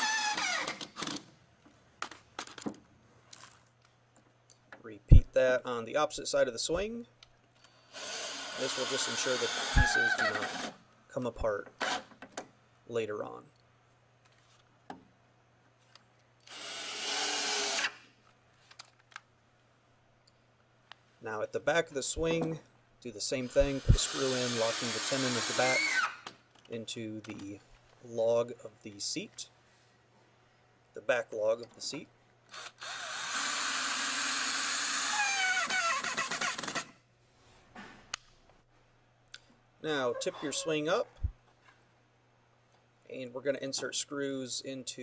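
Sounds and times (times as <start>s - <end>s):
cordless drill driving screw: 0.0s - 1.2s, 7.9s - 10.8s, 11.8s - 12.1s, 16.4s - 18.0s, 23.4s - 26.3s, 32.5s - 36.9s.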